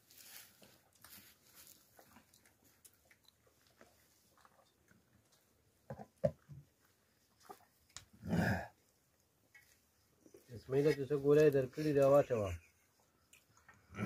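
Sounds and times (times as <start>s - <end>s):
soft chewing: 0.3s - 5.8s, 6.6s - 8.1s, 12.6s - 14.0s.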